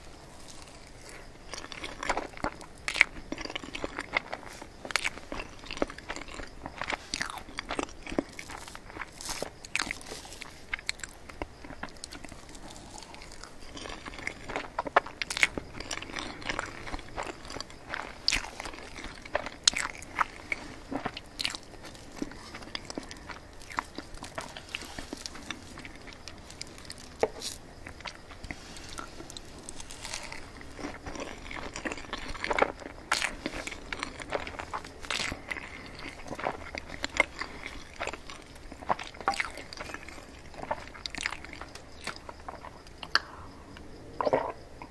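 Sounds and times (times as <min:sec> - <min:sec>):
wet chewing: 0:00.0 - 0:44.9
mouth clicks and smacks: 0:40.6 - 0:43.4.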